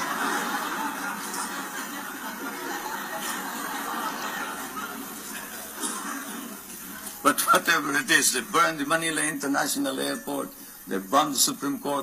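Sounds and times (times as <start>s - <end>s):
audience laughing: 0.0s - 8.2s.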